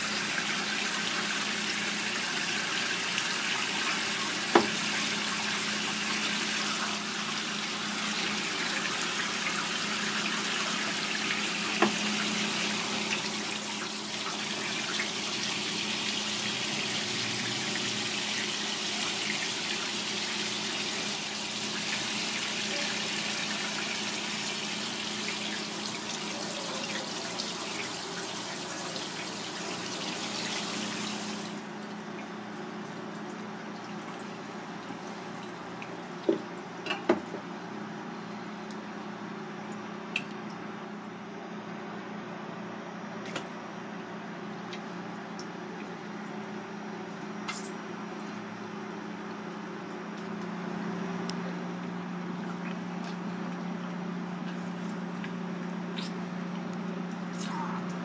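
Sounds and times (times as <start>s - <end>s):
tap running into sink: 4.5s - 4.8s, 11.7s - 12.0s.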